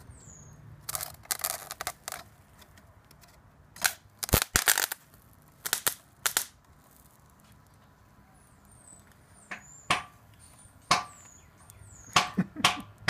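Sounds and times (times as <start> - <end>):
electrical arcing snaps: 3.8 - 6.6.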